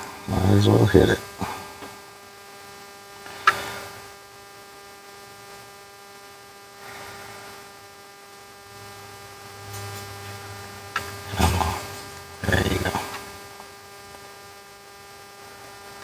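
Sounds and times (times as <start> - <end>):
high even buzz: 0.0 - 1.8, 6.8 - 15.4
electrical mains hum: 0.0 - 16.0.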